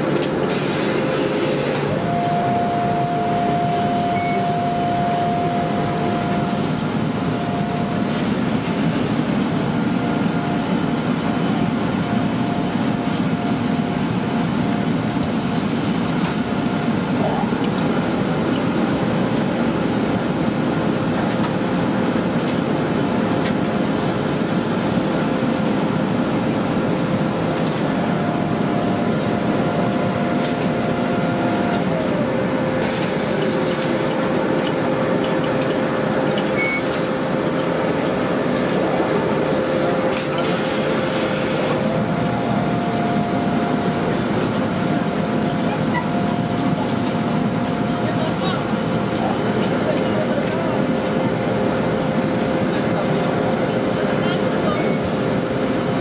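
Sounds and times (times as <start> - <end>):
ironing machines humming: 0.0 - 56.0
higher machine tone: 0.5 - 14.4, 36.2 - 37.4.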